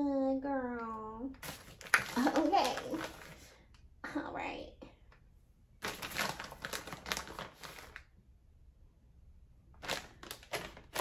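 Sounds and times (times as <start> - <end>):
plastic bag crinkling: 1.4 - 3.6, 5.8 - 8.1, 9.8 - 11.0.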